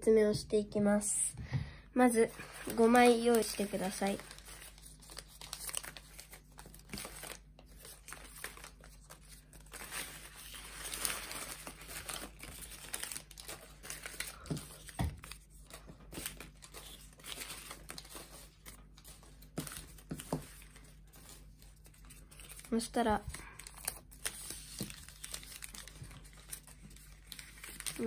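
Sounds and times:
paper rustling and crinkling: 2.2 - 28.0.

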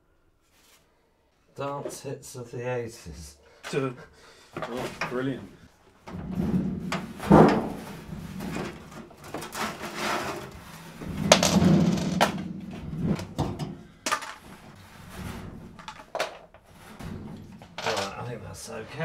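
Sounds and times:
clattering and rummaging: 4.6 - 19.0
rustling: 4.6 - 19.0
sharp knocks: 6.2 - 13.9.

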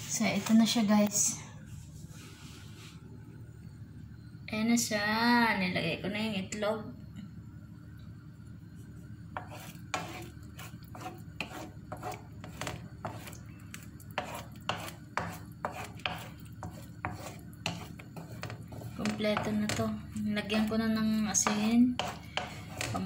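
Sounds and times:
low steady hum: 0.0 - 23.0
wooden spatula scraping frying pan: 9.4 - 23.0.

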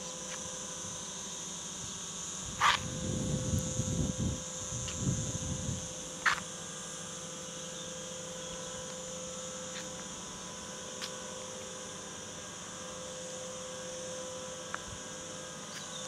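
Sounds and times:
steady hum: 0.0 - 16.0
high-pitched drone: 2.4 - 6.4.

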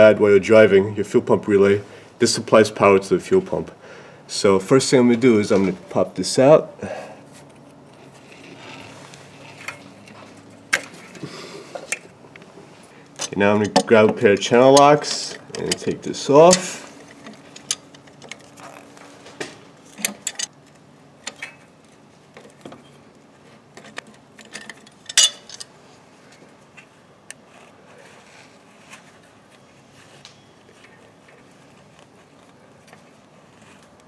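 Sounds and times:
pliers clicking and clanking on metal: 13.2 - 18.6, 19.9 - 20.5, 23.8 - 25.7.

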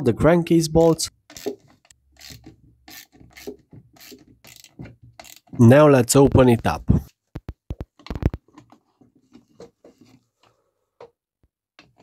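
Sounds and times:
plastic parts clicking and knocking: 1.2 - 5.6, 7.3 - 10.1, 11.8 - 12.0
plastic parts scraping: 7.4 - 10.6.

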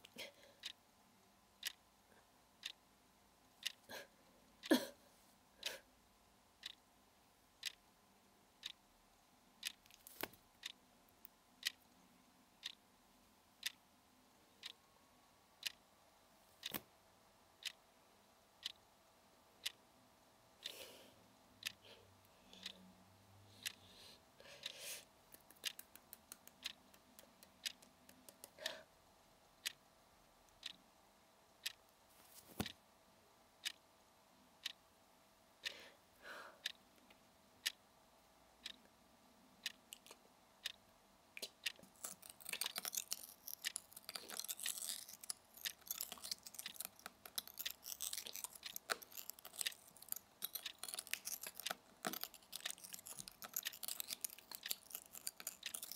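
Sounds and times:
slow even ticking: 0.1 - 0.8, 1.6 - 1.9, 2.6 - 2.8, 3.6 - 4.0, 6.6 - 6.9, 7.6 - 7.9, 8.6 - 8.8, 9.6 - 12.0, 12.6 - 12.8, 13.6 - 13.8, 14.6 - 15.0, 15.6 - 15.8, 17.6 - 17.8, 18.6 - 18.8, 21.6 - 21.9, 22.6 - 23.0, 24.6 - 28.9, 30.5 - 30.8, 36.4 - 37.8, 39.6 - 55.9
crunchy chewing: 41.7 - 55.9.

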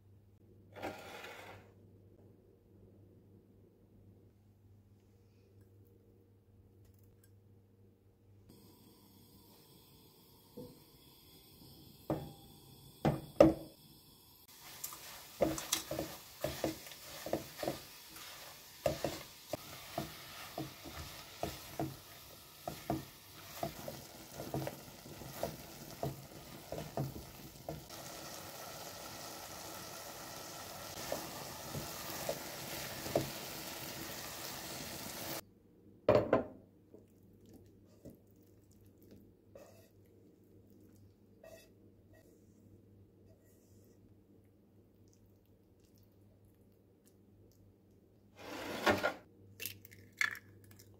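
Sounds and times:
apples sizzling in a pot: 8.5 - 35.4.

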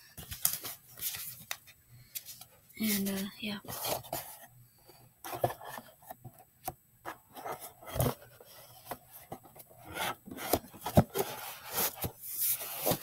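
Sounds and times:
paper and cardboard scraping: 7.3 - 13.0.

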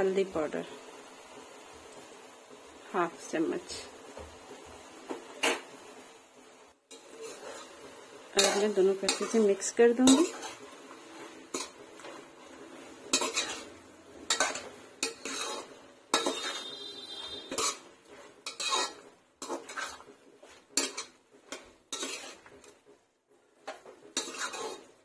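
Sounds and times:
metal spatula scraping a pan: 6.9 - 25.0.

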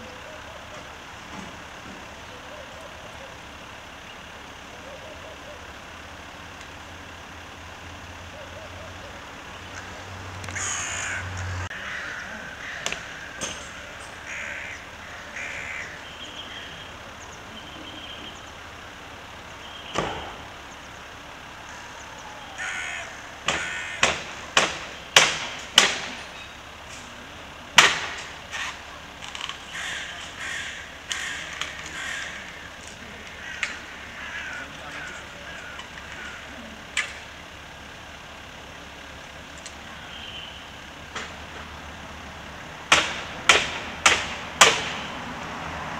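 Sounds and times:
crows cawing: 10.5 - 16.9, 21.6 - 24.3, 29.7 - 36.8.

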